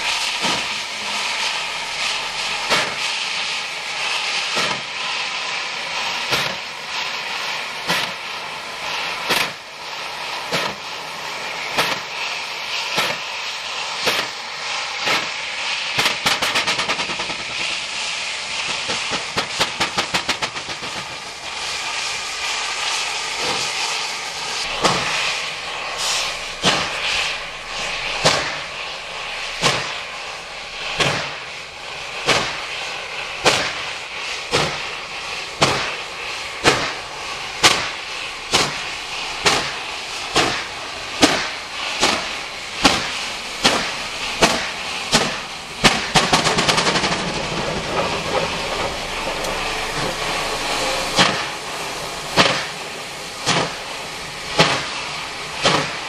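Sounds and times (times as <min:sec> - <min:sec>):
steam locomotive exhaust chuffing: 0:00.0 - 0:56.0.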